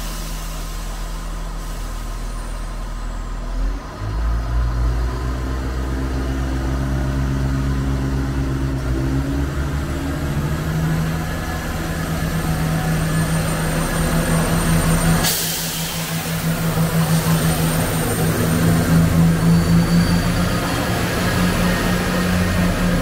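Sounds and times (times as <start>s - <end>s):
loud hiss of air: 0.0s - 2.6s, 14.4s - 19.4s
train diesel engines droning: 0.0s - 23.0s.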